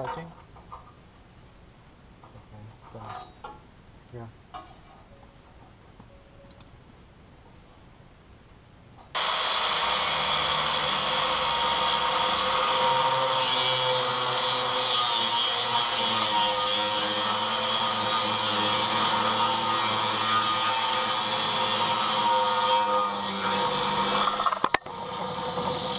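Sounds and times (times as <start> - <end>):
angle grinder cutting steel: 9.2 - 25.9.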